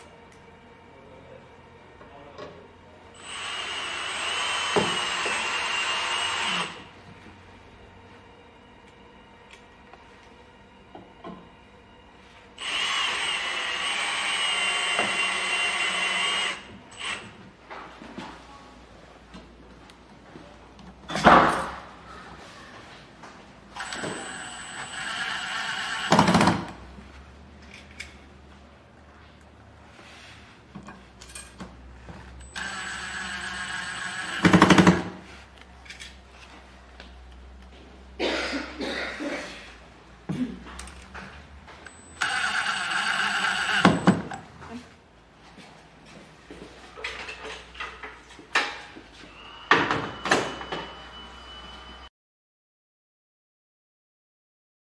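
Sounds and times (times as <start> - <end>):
cordless drill whining: 3.2 - 6.8, 12.6 - 17.3, 23.8 - 26.4, 32.4 - 34.8, 42.2 - 44.3.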